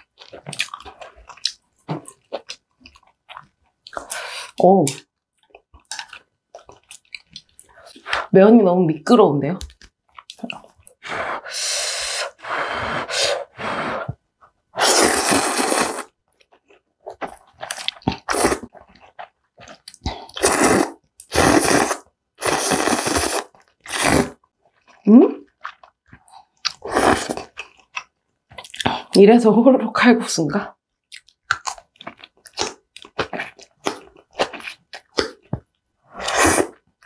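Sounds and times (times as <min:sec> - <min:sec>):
slurping noodles: 0:10.2 - 0:16.2, 0:17.1 - 0:24.4, 0:26.7 - 0:27.6, 0:36.1 - 0:36.8.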